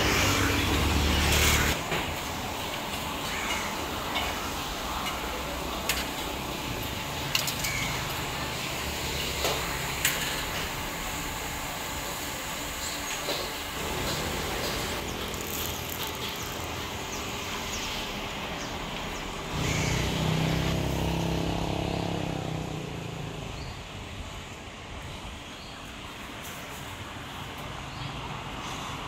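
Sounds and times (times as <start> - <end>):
vehicle engine starting and passing: 0.0 - 1.8, 19.2 - 23.7
street traffic: 0.0 - 29.0.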